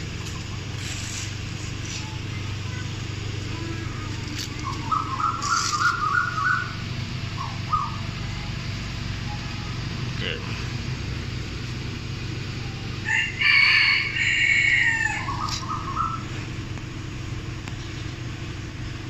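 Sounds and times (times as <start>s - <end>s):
car engine idling: 0.0s - 19.0s
bird chirps: 4.5s - 8.4s, 15.1s - 16.4s.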